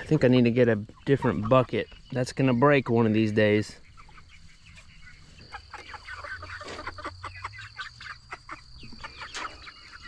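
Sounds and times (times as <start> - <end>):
young chickens clucking and chirping: 0.0 - 10.0.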